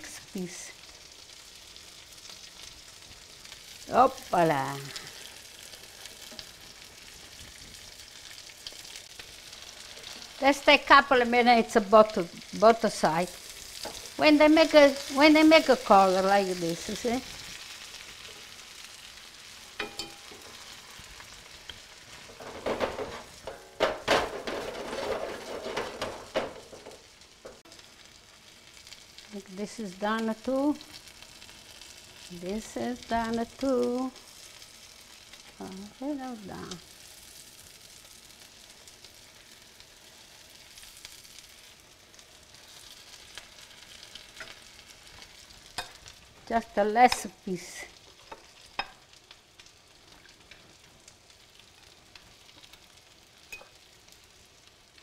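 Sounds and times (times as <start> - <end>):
meat sizzling in oil: 0.0 - 55.0
pan knocking on burner grate: 22.3 - 27.6.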